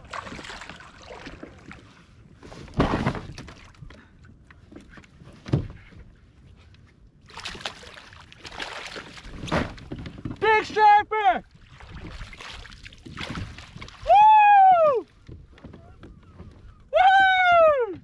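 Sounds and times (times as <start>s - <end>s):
water lapping against kayak hull: 0.0s - 10.5s, 11.4s - 14.2s.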